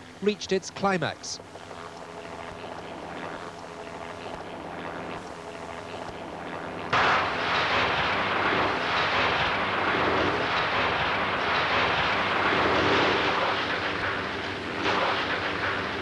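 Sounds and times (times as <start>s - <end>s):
diesel locomotive roaring: 7.0s - 16.0s.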